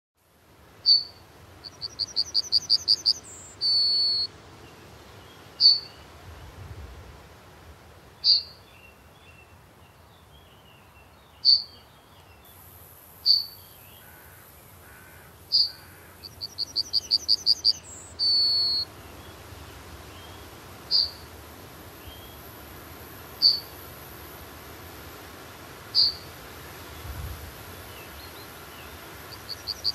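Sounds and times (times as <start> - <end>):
bird song rapid notes: 0.8 - 4.3, 5.6 - 6.0, 8.2 - 8.6, 11.4 - 12.3, 15.5 - 18.8, 20.9 - 21.2, 23.4 - 23.7, 26.0 - 26.3.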